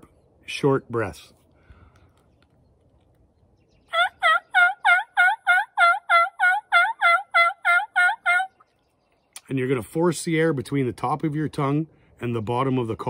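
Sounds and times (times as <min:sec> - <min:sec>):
turkey call yelps: 0:03.9 - 0:08.6.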